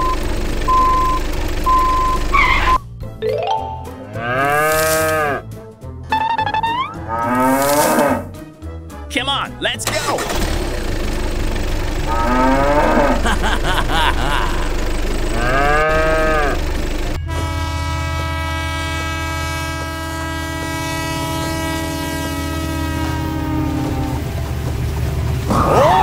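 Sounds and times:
train hum with held tones: 0.0s - 5.3s, 11.4s - 26.0s
cow mooing: 4.0s - 5.4s, 6.9s - 8.3s, 12.1s - 13.3s, 15.3s - 16.6s, 21.2s - 24.2s.

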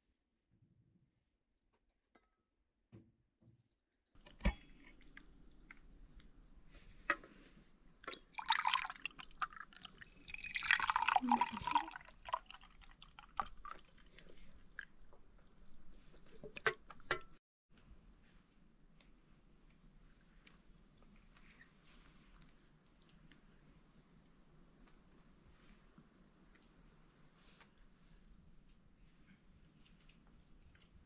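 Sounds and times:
drink pouring into metal cup: 8.0s - 15.0s
metal cups clinking: 10.3s - 12.5s.

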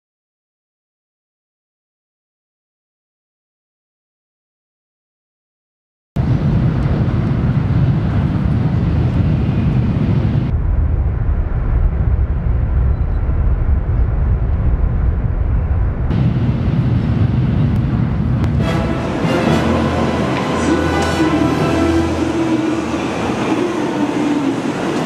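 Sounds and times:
rail rumble: 6.2s - 25.0s
rushing air: 6.2s - 25.0s.

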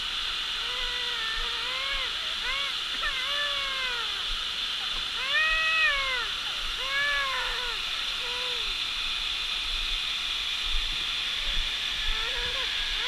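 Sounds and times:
background hiss: 0.0s - 13.0s
small child whining cries: 0.6s - 8.8s, 12.0s - 13.0s.

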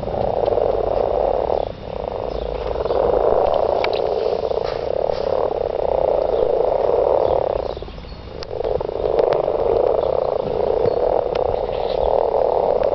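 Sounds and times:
frogs croaking in chorus: 0.0s - 12.9s.

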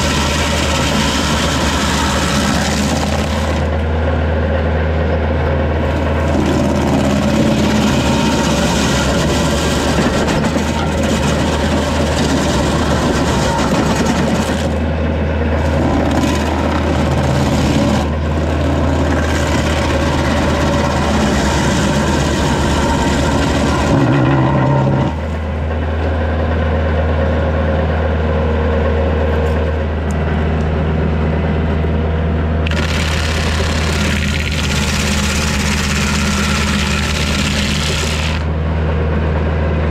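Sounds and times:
stump grinder cutting wood: 0.0s - 4.1s, 5.4s - 25.6s, 32.6s - 38.5s
tractor diesel engine droning: 0.0s - 39.9s.

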